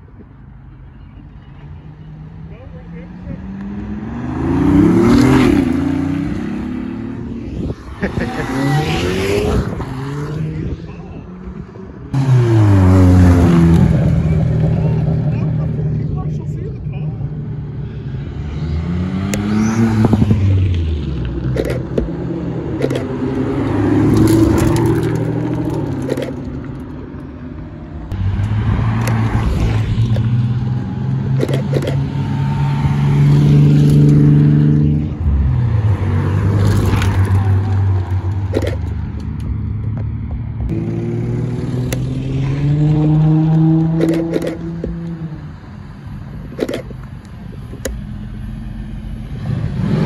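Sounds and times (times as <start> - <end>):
car engines revving past: 2.1 - 50.0.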